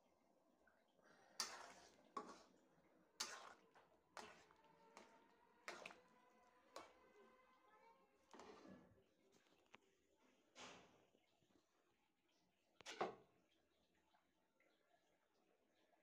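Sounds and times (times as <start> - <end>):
spoon stirring in metal pot: 1.3 - 7.4.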